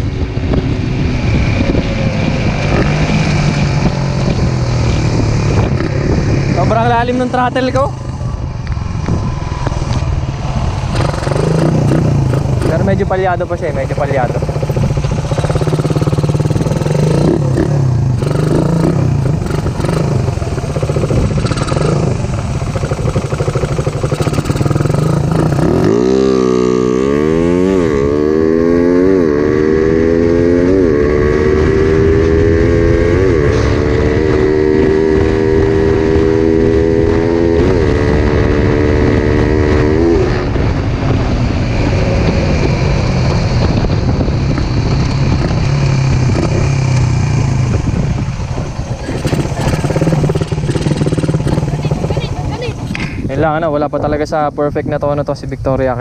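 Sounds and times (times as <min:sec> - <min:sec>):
motorcycle engine revving: 0:00.0 - 0:54.2
engine misfiring: 0:10.9 - 0:26.0, 0:43.7 - 0:53.3.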